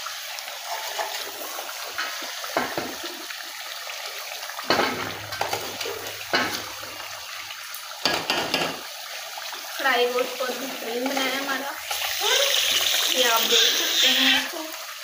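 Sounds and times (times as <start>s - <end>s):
gas burner hissing: 11.6s - 14.6s.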